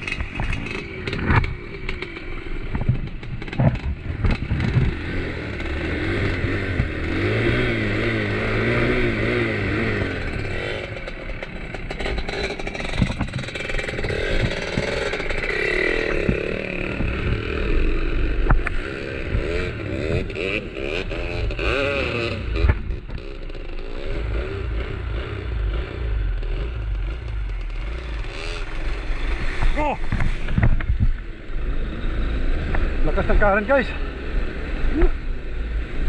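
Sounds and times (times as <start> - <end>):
knocks and clatter from bike: 0.0 - 7.0, 10.2 - 17.6, 18.4 - 24.1, 26.4 - 31.3
motorcycle engine revving: 0.0 - 36.0.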